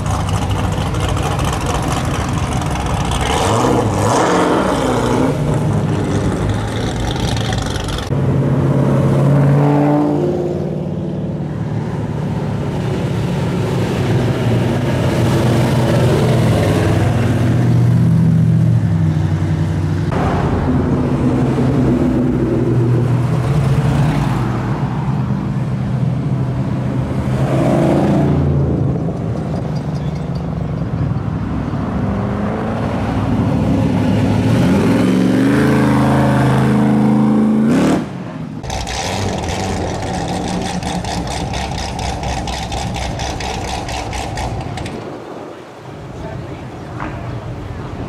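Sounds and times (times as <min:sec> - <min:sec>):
engine with fast clatter: 0:00.0 - 0:08.2, 0:38.6 - 0:45.2
cars driving past: 0:00.0 - 0:48.0.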